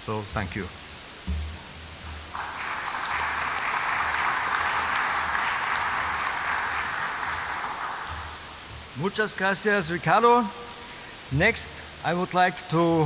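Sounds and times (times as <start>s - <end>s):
audience applauding: 2.3s - 9.1s.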